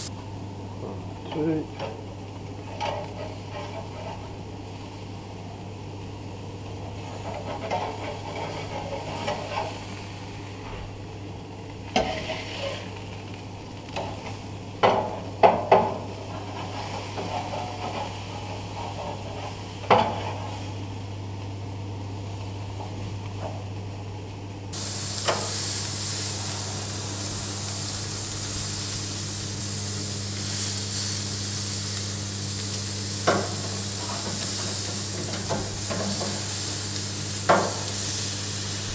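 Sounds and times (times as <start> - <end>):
metal spatula scraping a grate: 7.1 - 9.8, 12.0 - 12.9, 16.3 - 20.4
fish sizzling on a grill: 24.7 - 38.9.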